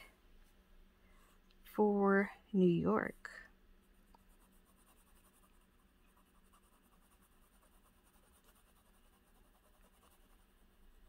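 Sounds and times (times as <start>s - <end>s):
pen nib scratching on paper: 4.0s - 11.0s.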